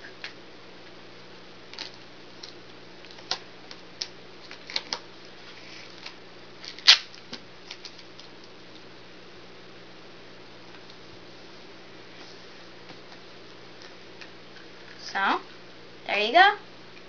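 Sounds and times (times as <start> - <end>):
duct tape crackling: 0.0 - 9.0
sharp tape snap: 6.6 - 7.9.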